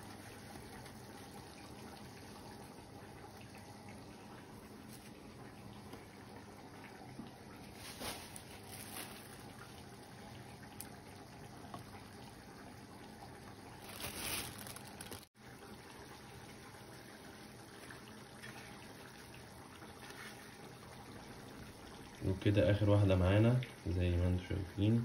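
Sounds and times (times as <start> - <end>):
hands handling wet chicken: 13.8 - 15.3.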